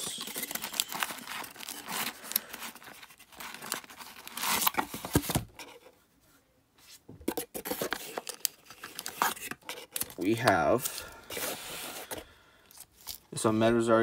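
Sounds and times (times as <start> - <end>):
cards in plastic sleeves rustling: 0.0 - 5.9, 7.3 - 14.0.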